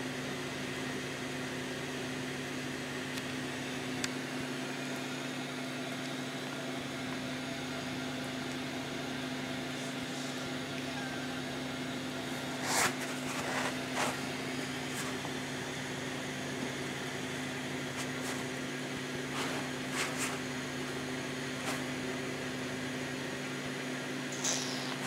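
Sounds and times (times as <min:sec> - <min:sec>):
electric fan humming: 0:00.0 - 0:25.0
brief rustles: 0:19.3 - 0:20.5.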